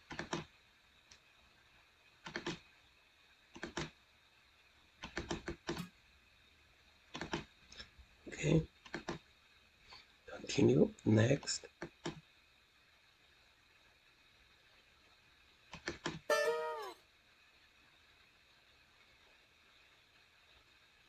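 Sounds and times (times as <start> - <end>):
computer mouse clicking: 0.0 - 0.5, 2.2 - 2.6, 3.5 - 3.9, 5.0 - 5.9, 7.1 - 7.5, 8.8 - 9.2, 11.8 - 12.2, 15.7 - 16.2.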